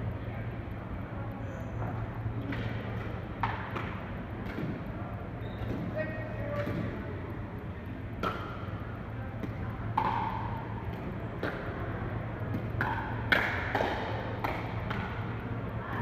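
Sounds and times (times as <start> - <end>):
pickleball paddle hits: 2.5 - 4.8, 9.4 - 11.8, 12.5 - 15.2.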